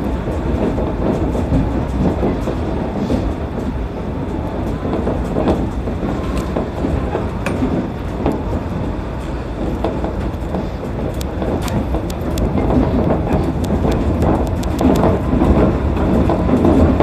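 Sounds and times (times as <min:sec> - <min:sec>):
monorail car rumbling: 0:00.0 - 0:17.0
sharp clicks and rattles: 0:09.6 - 0:17.0.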